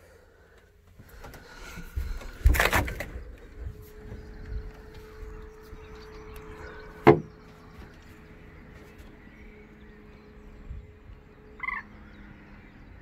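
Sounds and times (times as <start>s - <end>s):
faint steady hum: 0.0s - 13.0s
bird call: 11.3s - 12.8s.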